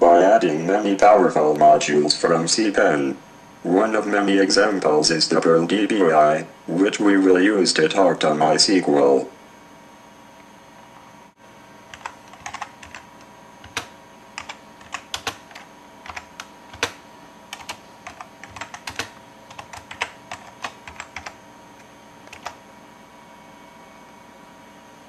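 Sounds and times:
keyboard typing: 11.9s - 22.6s.

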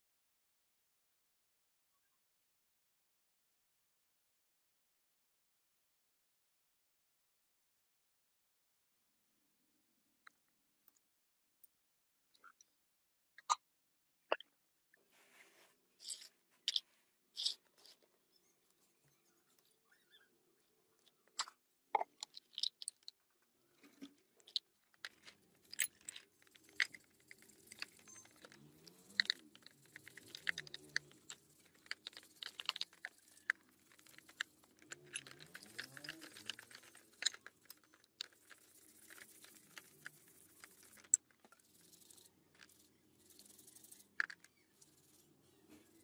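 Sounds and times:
stiff brush scrubbing: 24.5s - 46.0s.

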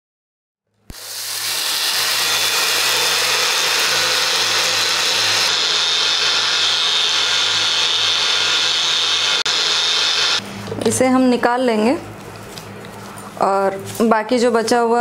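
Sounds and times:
blender motor grinding: 0.9s - 10.4s.

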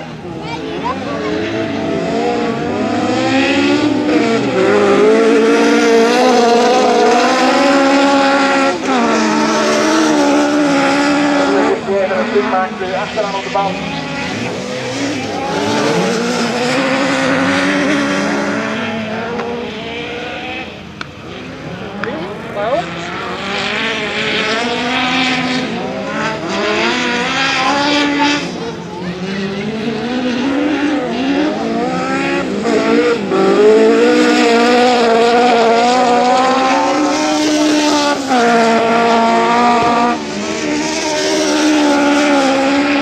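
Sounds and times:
race car engines revving: 0.0s - 43.0s.

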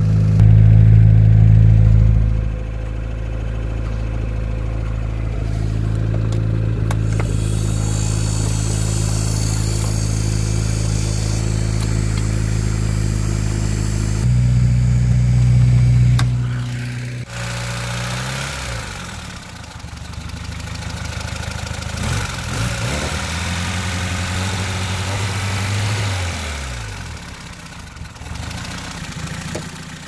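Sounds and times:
car engine idling: 0.0s - 22.6s, 23.4s - 30.0s
high hiss: 7.0s - 14.3s.

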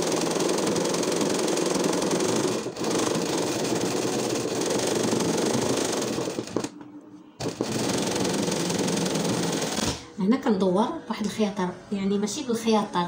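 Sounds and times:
sewing machine running: 0.0s - 6.7s, 7.4s - 10.0s.

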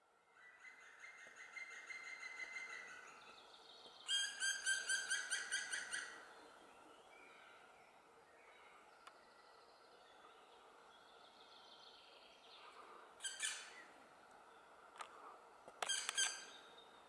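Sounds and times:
faint songbird song: 0.0s - 17.0s
woodpecker calling: 4.1s - 6.2s, 13.2s - 13.8s, 15.8s - 16.6s.

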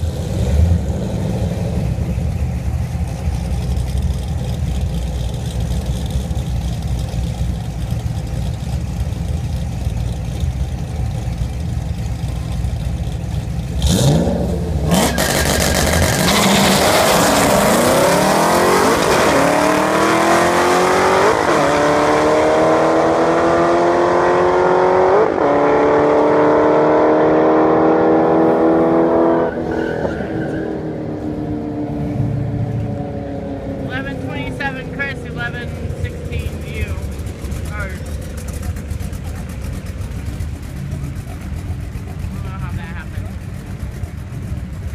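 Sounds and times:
race car engines idling: 0.0s - 18.2s, 31.1s - 44.9s
engines revving while accelerating: 0.0s - 44.9s.

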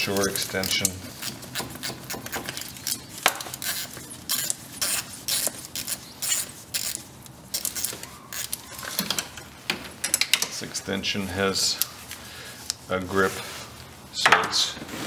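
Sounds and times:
socket tool scraping: 0.0s - 9.4s.

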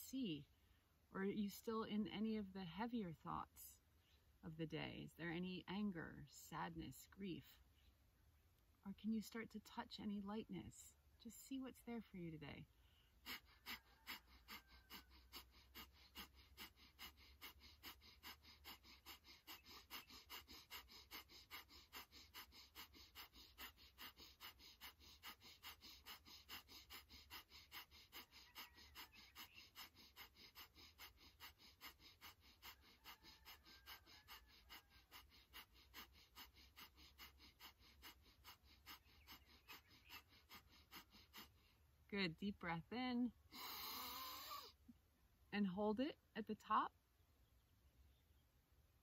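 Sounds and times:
rapid rhythmic breathing: 9.2s - 44.9s.

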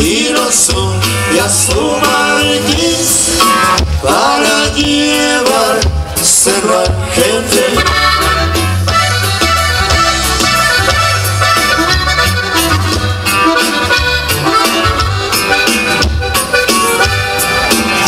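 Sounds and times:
pulsing bass line: 0.0s - 18.0s
accordion melody: 7.2s - 18.0s.

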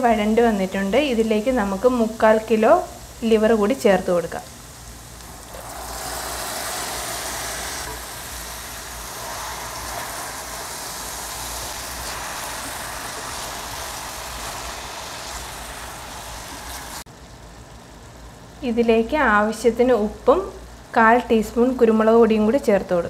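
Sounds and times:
liver sizzling in frying pan: 0.0s - 17.4s.

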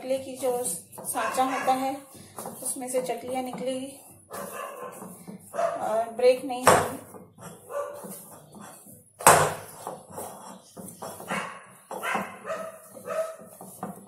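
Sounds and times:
dough being kneaded by hand: 0.0s - 14.0s
dog barking and yelping: 1.2s - 1.8s, 4.3s - 5.8s, 7.6s - 8.1s, 11.2s - 13.5s.

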